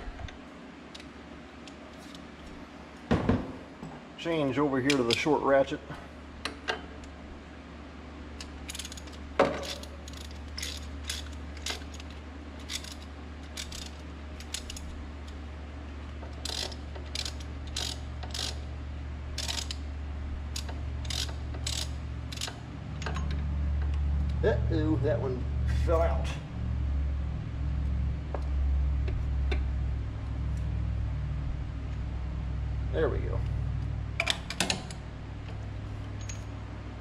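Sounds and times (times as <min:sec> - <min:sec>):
steady low hum: 0:00.0 - 0:37.0
hand ratchet clicking: 0:08.6 - 0:15.4, 0:16.3 - 0:18.7, 0:19.4 - 0:19.8, 0:20.5 - 0:22.6.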